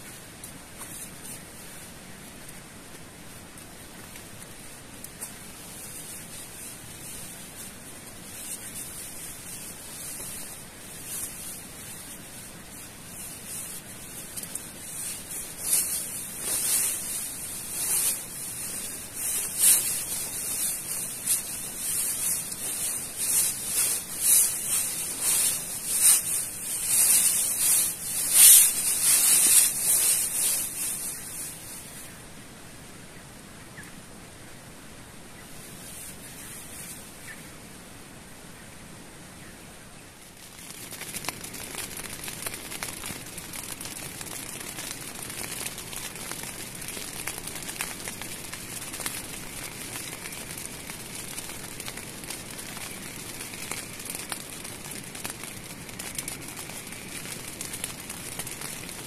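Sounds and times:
hammock fabric rustling: 0.0s - 32.2s
steady hiss: 0.0s - 59.0s.

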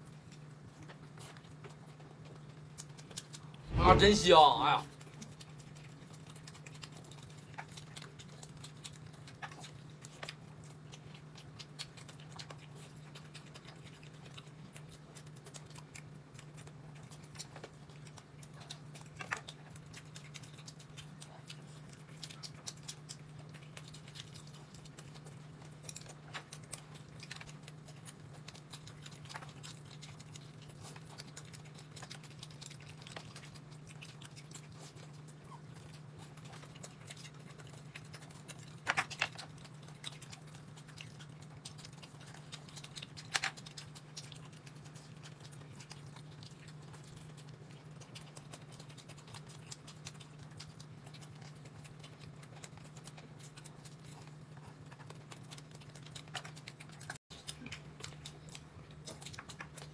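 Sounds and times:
person chewing and eating: 0.0s - 59.9s
low hum: 3.7s - 4.8s.

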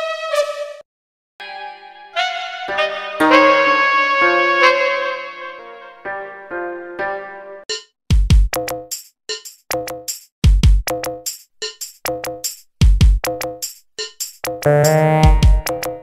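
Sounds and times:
deep kick drums: 8.1s - 8.5s, 10.4s - 10.9s, 12.8s - 13.2s, 15.2s - 15.7s
hi-hat ticks: 10.9s - 15.0s
short synth stabs: 14.7s - 15.7s.

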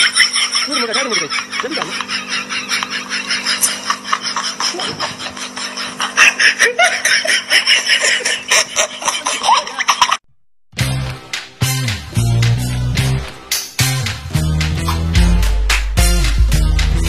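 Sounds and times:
people laughing hard: 0.0s - 10.2s.

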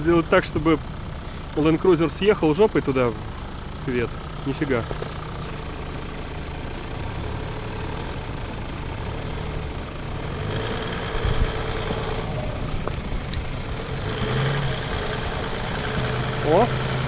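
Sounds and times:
diesel engines idling: 0.0s - 17.0s.

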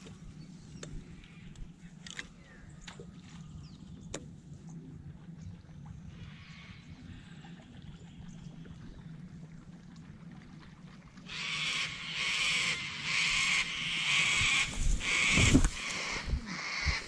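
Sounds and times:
reeds and grass rustling: 13.6s - 17.0s.

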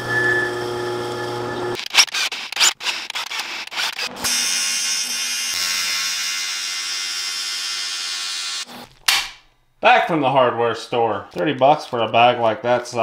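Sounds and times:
welding arc buzzing and hissing: 0.7s - 9.1s
cordless drill boring into metal: 1.7s - 8.7s.

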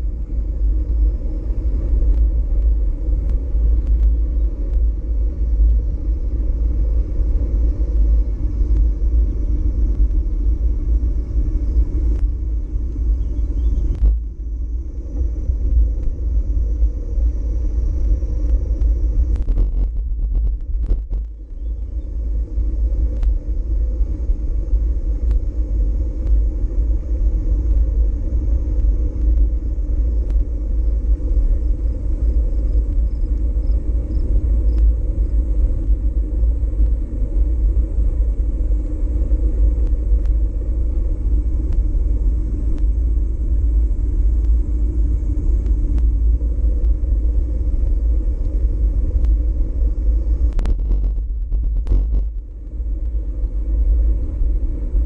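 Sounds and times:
bicycle tyre and trail noise: 0.0s - 55.0s
wind rumble on microphone: 0.0s - 55.0s
faint ticks: 1.8s - 4.9s, 8.6s - 9.0s, 18.0s - 23.4s, 28.8s - 29.5s, 30.2s - 30.6s, 32.4s - 36.0s, 39.8s - 40.5s, 41.6s - 41.9s, 42.7s - 43.0s, 44.4s - 44.6s, 45.6s - 46.2s, 46.8s - 47.0s, 47.8s - 49.4s, 50.4s - 53.6s.

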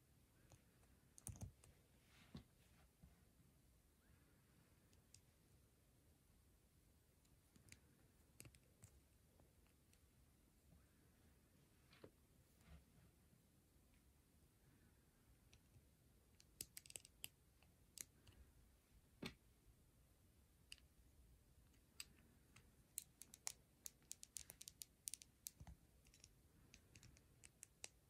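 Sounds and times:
plastic building bricks clicking: 16.4s - 17.3s, 23.0s - 28.0s.

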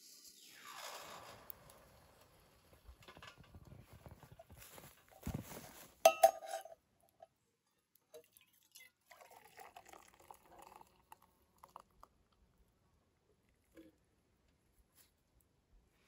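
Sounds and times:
faint handling sounds: 2.3s - 7.4s
cookware clinking: 6.1s - 6.8s
liquid pouring: 8.1s - 12.4s.

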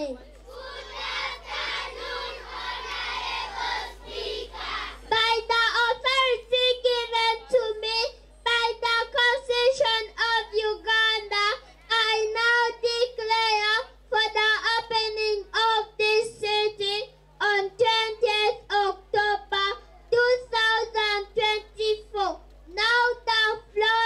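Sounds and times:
crowd murmur: 0.0s - 5.5s.

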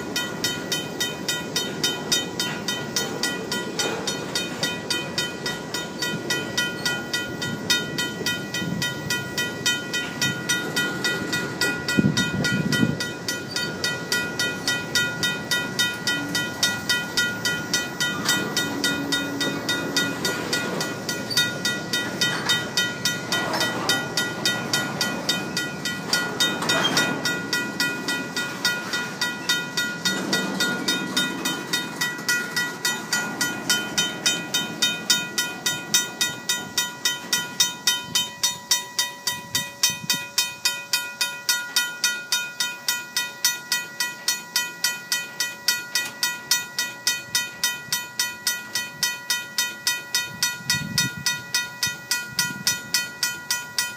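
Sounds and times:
mechanical crossing bell ringing: 0.0s - 53.9s
train cars rumbling past: 0.0s - 53.9s.

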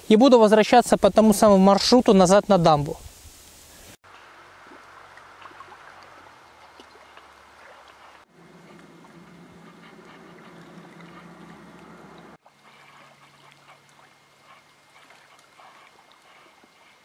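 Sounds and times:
small waves lapping: 3.6s - 17.0s
low steady hum: 4.1s - 16.2s.

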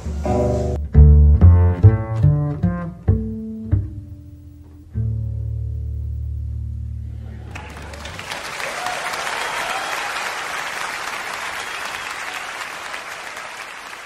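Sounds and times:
low double bass note: 0.0s - 7.4s
audience applauding: 7.4s - 14.0s.

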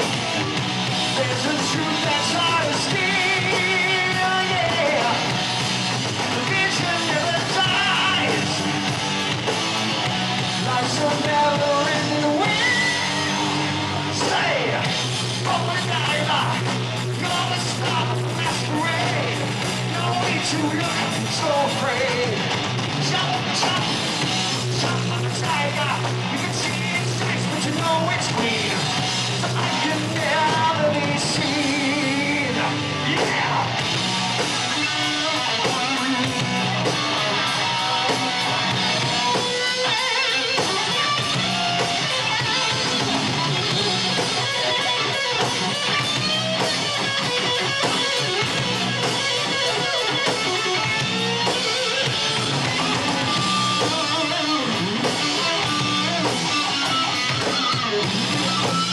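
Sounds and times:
distorted electric guitars: 0.0s - 58.9s
drum kit: 0.0s - 58.9s
person singing: 1.2s - 5.3s, 6.3s - 8.6s, 10.6s - 24.0s.

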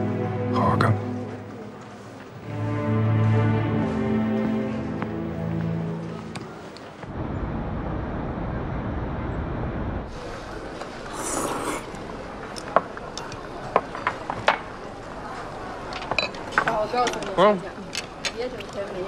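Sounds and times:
restaurant background noise: 0.0s - 7.2s, 10.0s - 19.0s
glass and tableware clinking: 16.1s - 16.7s.

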